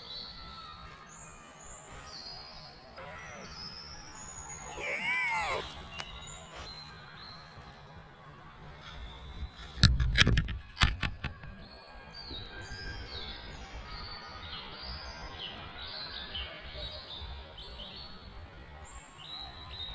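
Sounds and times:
birds singing: 0.0s - 8.0s
knocks and bumps on camera: 9.6s - 11.6s.

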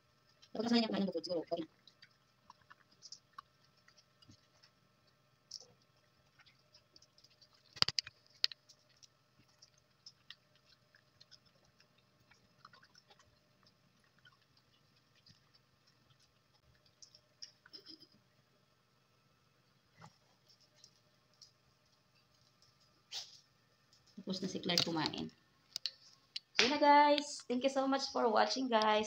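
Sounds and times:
dog crunching kibble: 0.4s - 18.0s.

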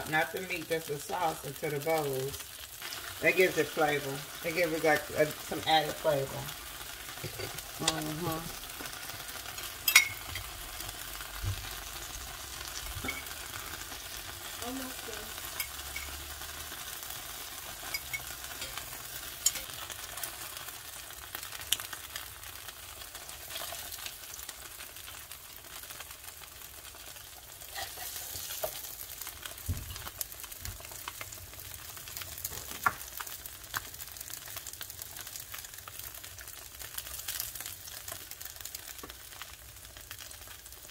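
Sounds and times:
food sizzling on griddle: 0.0s - 40.9s
utensils and plate clicking: 17.8s - 19.8s.

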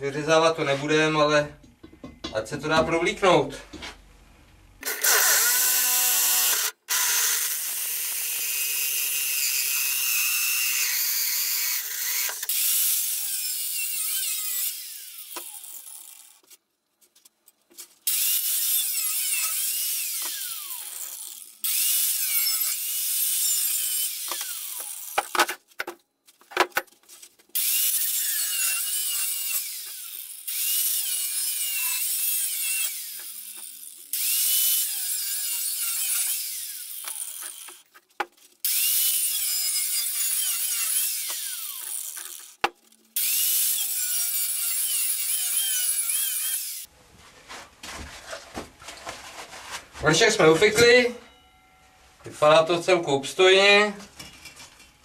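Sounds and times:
electric drill boring through steel: 4.8s - 16.3s, 18.1s - 25.2s, 27.6s - 37.8s, 38.6s - 42.6s, 43.2s - 46.9s
angle grinder cutting metal: 4.8s - 16.4s, 18.1s - 25.6s, 27.6s - 37.9s, 38.6s - 46.9s.

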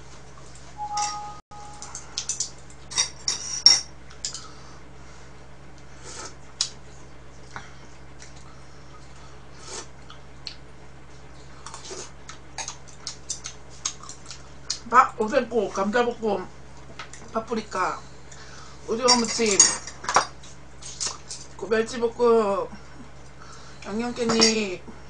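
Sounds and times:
chopsticks clicking against bowls: 12.6s - 14.8s.

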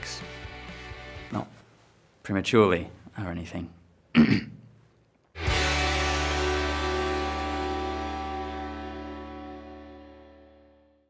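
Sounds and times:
sustained chord with deep bass: 5.4s - 11.0s.

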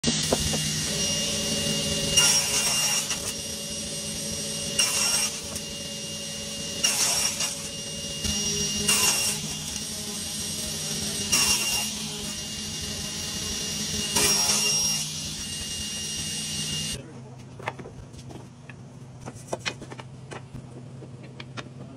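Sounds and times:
saw cutting wood: 0.0s - 17.0s
table saw whining: 0.0s - 17.0s.

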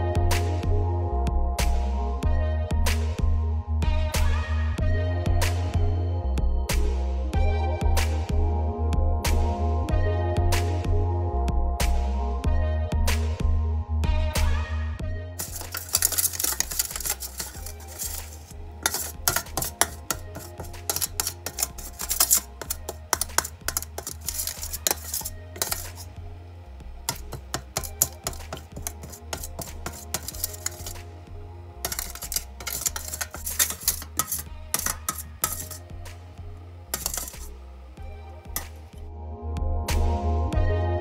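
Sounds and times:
background music with bass pulse: 0.0s - 15.4s, 18.5s - 18.8s, 25.2s - 30.1s, 30.9s - 32.6s, 35.8s - 41.0s
metal spoon clinking in steel bowl: 15.4s - 26.1s, 27.1s - 31.0s, 31.8s - 35.8s, 37.0s - 37.5s.

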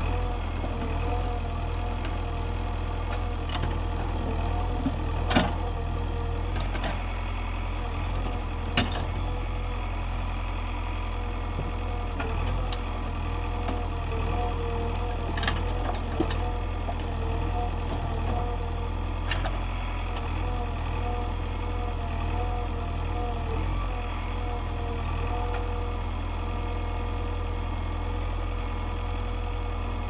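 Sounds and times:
diesel engine running: 0.0s - 30.0s.

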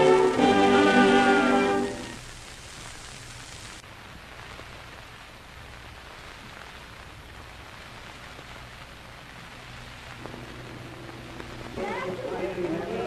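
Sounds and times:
faint steady tones: 0.0s - 13.0s
record hiss and crackle: 0.0s - 13.0s
low hum: 10.1s - 13.0s.

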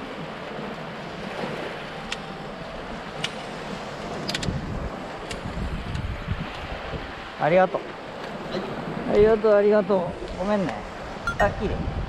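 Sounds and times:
surf washing against rocks: 0.0s - 12.0s
wind on microphone: 4.1s - 7.3s, 11.0s - 12.0s.

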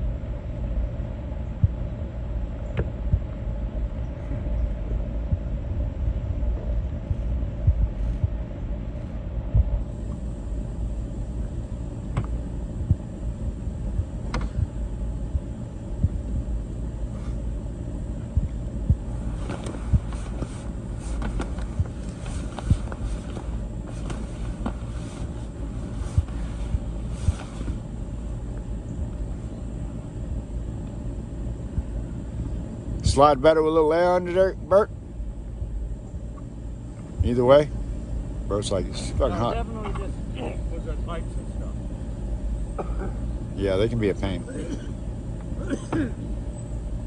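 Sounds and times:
wind buffeting microphone: 1.4s - 10.0s
rubber sheet rustling and scraping: 19.2s - 27.8s.

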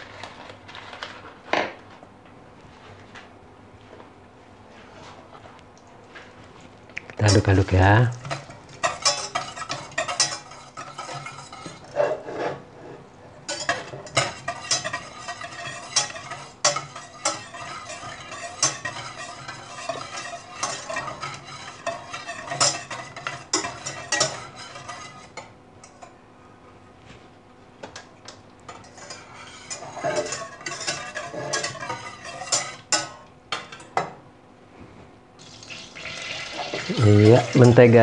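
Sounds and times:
whisk scraping saucepan: 7.2s - 26.1s, 28.7s - 34.1s.

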